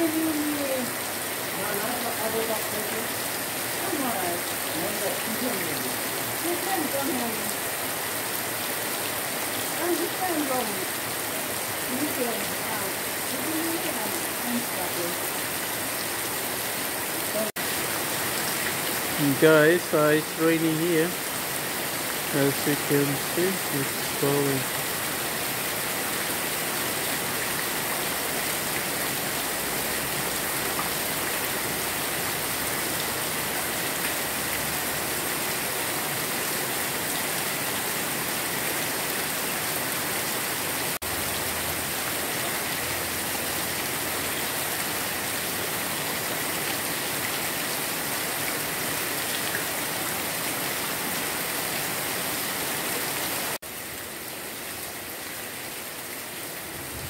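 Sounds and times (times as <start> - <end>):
rain falling on plants: 0.0 - 57.0.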